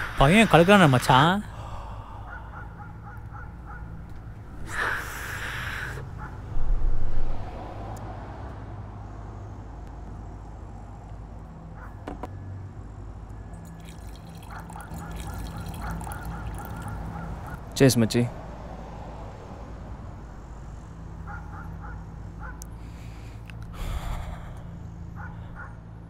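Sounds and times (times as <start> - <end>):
low hum: 0.0 - 11.7
liquid splashing and gurgling: 13.6 - 17.6.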